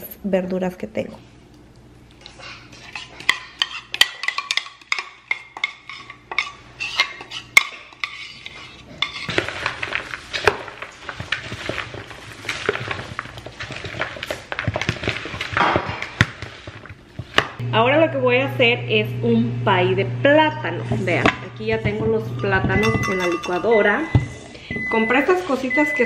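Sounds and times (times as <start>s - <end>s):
utensils clinking on bowls: 2.8s - 12.0s, 22.0s - 24.3s
salad being tossed with spatula: 2.8s - 17.6s.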